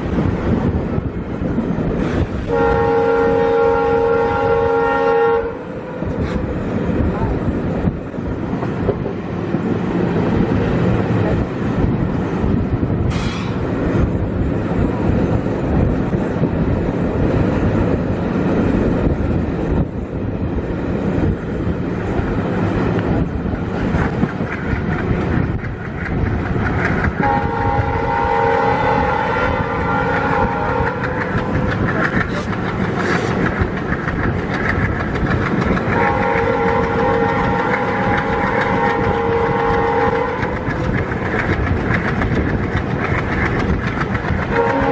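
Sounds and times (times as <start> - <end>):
multi-tone train horn: 2.4 - 6.2, 27.2 - 31.6, 35.9 - 40.6, 44.4 - 44.9
train wheels clattering on rail joints: 6.0 - 44.9.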